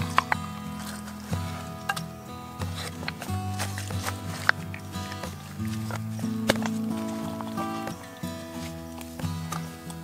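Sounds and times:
background music with low notes: 0.0s - 10.0s.

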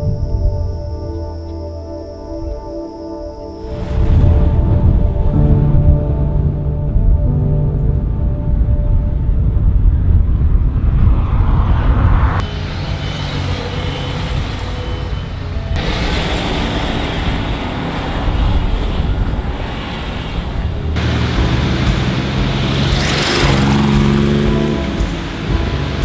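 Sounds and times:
background music with held notes: 0.0s - 10.6s, 13.5s - 17.5s, 20.8s - 26.0s
pickup truck rumbling: 11.8s - 26.0s.

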